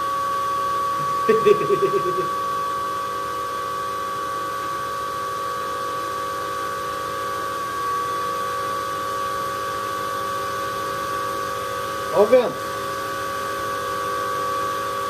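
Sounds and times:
cooling fans whining: 0.0 - 15.0.

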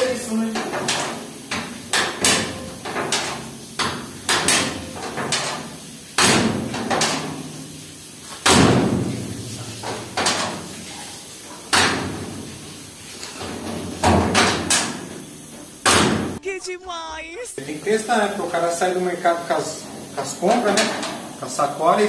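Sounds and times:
heavy bangs on sheet metal: 0.5 - 7.8, 8.4 - 10.8, 11.7 - 12.5, 13.4 - 15.1, 15.7 - 16.4.

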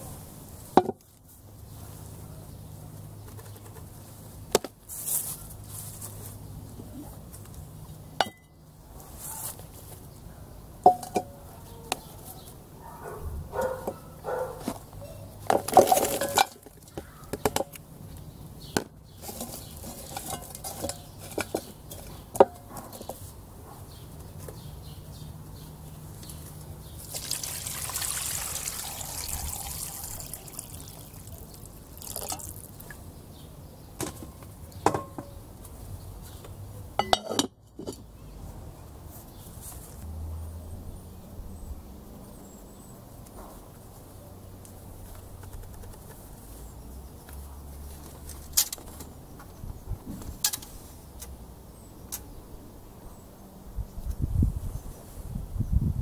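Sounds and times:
water pouring into pot: 27.0 - 32.8
bones knocking in a pot: 27.0 - 33.0, 37.0 - 38.0.

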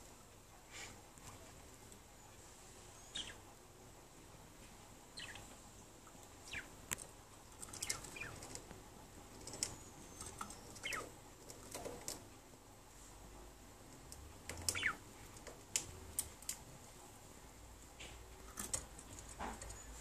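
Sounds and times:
budgerigars chirping: 3.0 - 3.4, 5.2 - 5.5, 6.4 - 6.7, 7.7 - 8.6, 10.0 - 11.1, 14.7 - 15.0.

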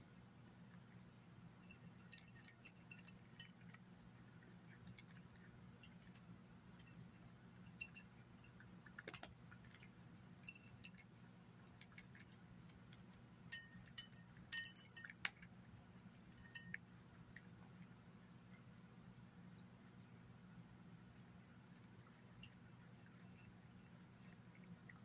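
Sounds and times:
kibble clinking on glass: 1.6 - 3.8, 6.7 - 9.8, 10.4 - 11.2, 13.4 - 16.9
cat crunching dry kibble: 1.8 - 18.2.

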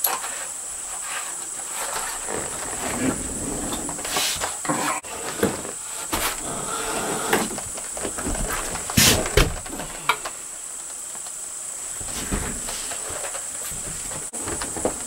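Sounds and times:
insects singing high-pitched whine: 0.0 - 15.0
close rustles and knocks: 11.9 - 15.0.

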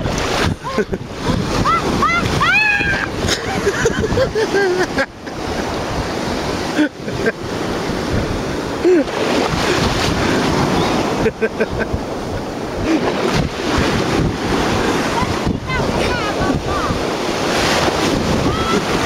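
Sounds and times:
sea surf washing in: 0.0 - 19.0
wind on microphone: 0.0 - 19.0.

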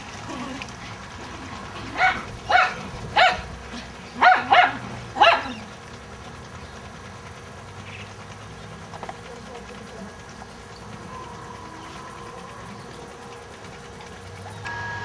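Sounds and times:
dog barking: 2.0 - 3.4, 4.2 - 5.6.

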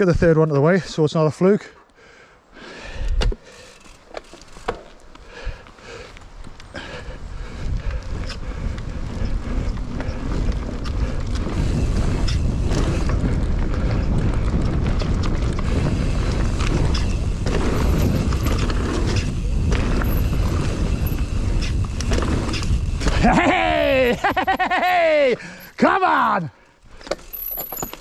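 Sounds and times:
bike knocking and rattling: 3.2 - 26.1, 26.8 - 28.0
bike tyres rumbling over dirt: 3.5 - 26.2, 26.8 - 28.0
wind buffeting microphone: 6.3 - 24.8.

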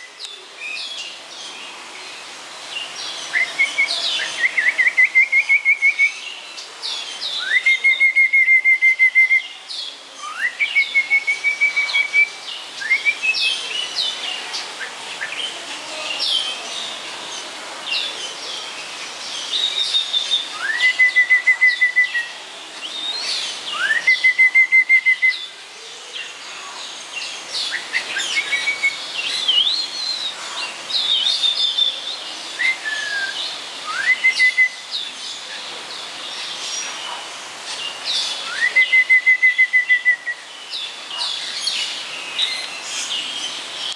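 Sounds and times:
bird whistled song: 3.3 - 6.3, 7.3 - 9.6, 10.2 - 13.6, 19.5 - 25.5, 27.6 - 30.3, 32.6 - 35.1, 38.1 - 40.5.

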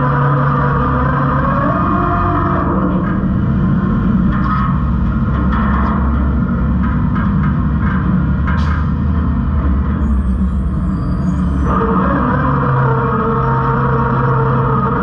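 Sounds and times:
garbage truck low rumble: 0.0 - 15.0.

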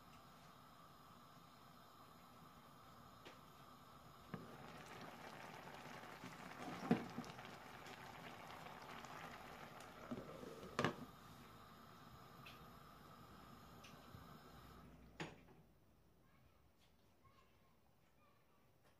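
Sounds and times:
curry bubbling faintly: 0.6 - 14.3.

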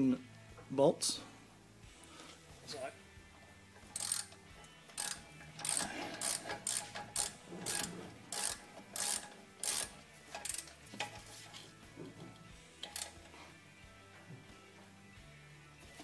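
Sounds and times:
socket ratchet clicking: 3.8 - 11.3, 12.8 - 13.3.

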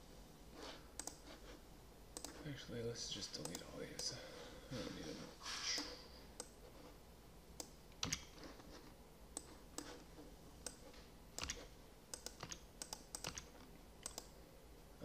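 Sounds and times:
computer mouse clicks: 1.0 - 1.4, 2.2 - 2.4, 3.4 - 4.1, 5.8 - 6.7, 7.6 - 8.8, 9.4 - 14.4
keyboard keys clicking: 7.6 - 8.4, 11.4 - 14.3.

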